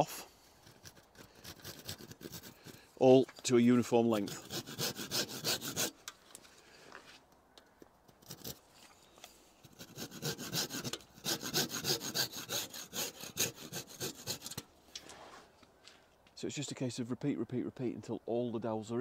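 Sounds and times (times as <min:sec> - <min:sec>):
hand saw cutting wood: 0:00.0 - 0:02.9, 0:04.1 - 0:06.0, 0:08.2 - 0:08.6, 0:09.6 - 0:14.7.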